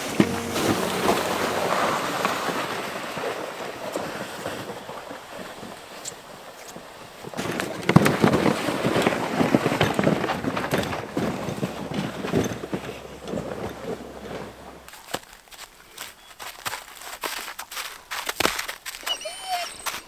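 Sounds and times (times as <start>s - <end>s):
footsteps crunching through snow: 14.9s - 19.0s.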